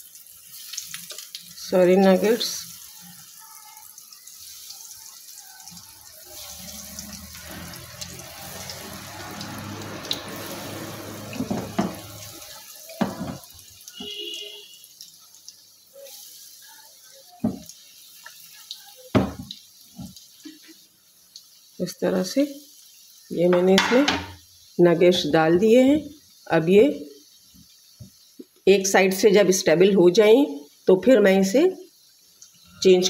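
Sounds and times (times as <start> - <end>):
food sizzling in hot oil: 0.0 - 33.0
sharp knocks in pan: 11.4 - 12.0, 13.0 - 13.4, 19.1 - 19.5, 23.6 - 24.4.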